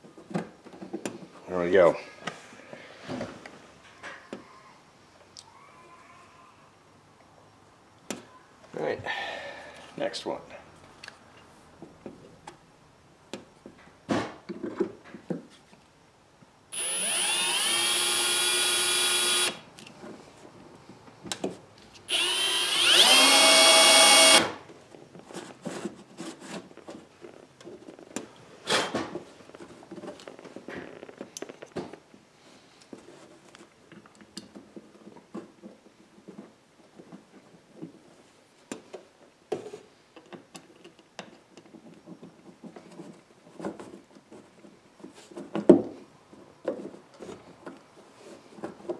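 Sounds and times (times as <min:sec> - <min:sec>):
cordless drill drilling metal: 0:16.7 - 0:19.6, 0:22.1 - 0:24.6.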